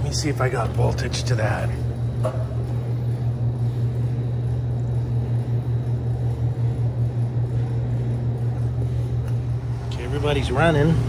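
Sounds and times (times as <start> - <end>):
refrigerator humming: 0.0 - 11.0.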